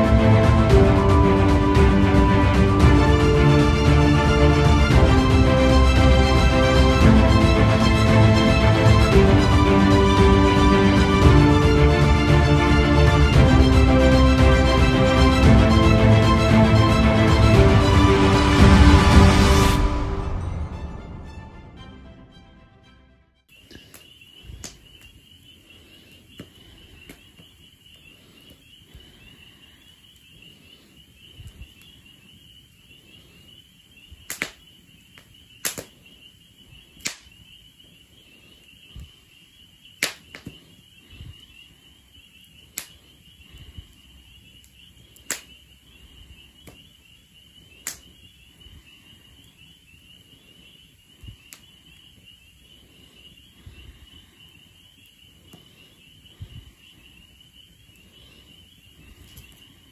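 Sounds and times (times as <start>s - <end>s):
wood fire crackling and popping: 23.7s - 25.2s, 26.1s - 28.6s, 34.2s - 36.2s, 36.8s - 37.5s, 39.9s - 40.8s, 42.4s - 45.7s, 47.7s - 48.4s, 59.1s - 59.9s.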